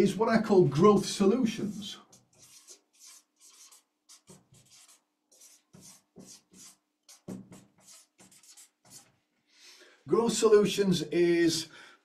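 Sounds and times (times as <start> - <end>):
marker scratching on paper: 1.5 - 9.2.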